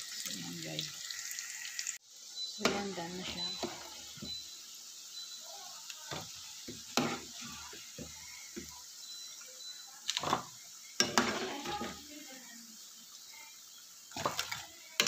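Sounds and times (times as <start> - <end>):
food sizzling in hot oil: 0.0 - 15.0
metal spatula scraping pan: 2.6 - 4.3, 6.7 - 8.1, 10.2 - 12.1.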